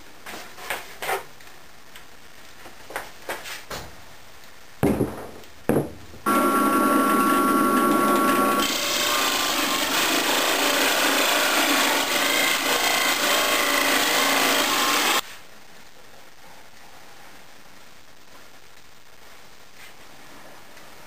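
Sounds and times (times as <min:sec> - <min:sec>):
drill bit cutting through wood: 0:06.3 - 0:15.2
drill press motor whine: 0:06.3 - 0:15.2.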